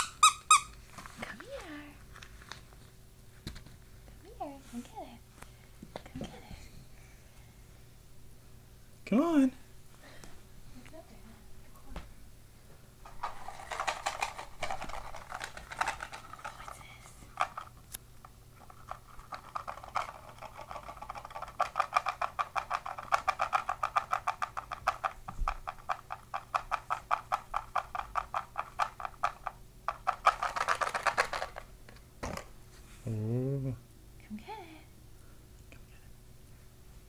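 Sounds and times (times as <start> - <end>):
plastic packaging shaken: 13.1 - 16.7, 18.6 - 31.7.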